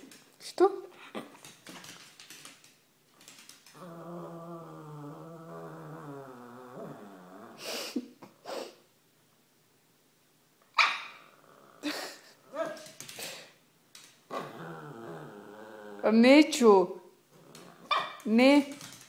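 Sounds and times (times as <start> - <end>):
dog moaning whine: 3.8 - 7.9, 14.3 - 16.2.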